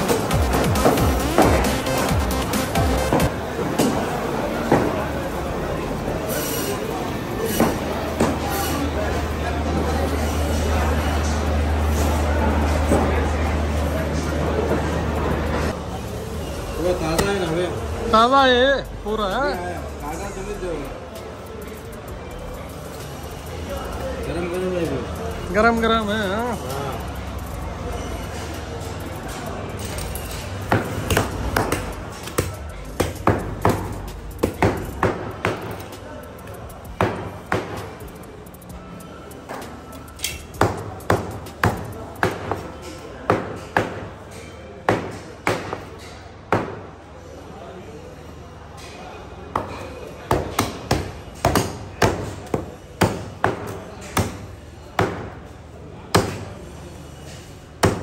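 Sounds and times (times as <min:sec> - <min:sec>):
cleaver chopping meat and bone: 0:49.6 - 0:54.4.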